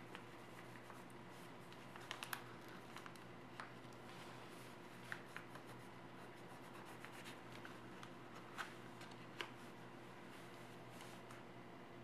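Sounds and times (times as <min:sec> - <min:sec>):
paper rustling while folded: 0:00.0 - 0:11.4
paper clicks: 0:01.7 - 0:04.0.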